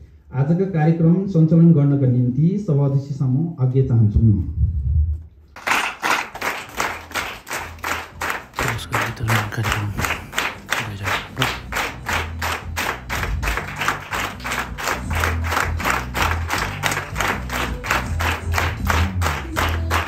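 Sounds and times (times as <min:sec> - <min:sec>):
audience clapping: 0:05.6 - 0:20.0.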